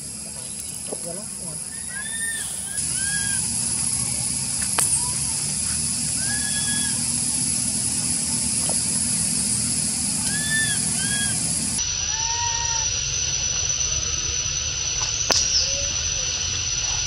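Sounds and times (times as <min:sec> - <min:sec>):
steady hiss: 0:00.0 - 0:17.0
macaque whistle-like coo calls: 0:01.3 - 0:13.0
low rumble: 0:02.5 - 0:11.8.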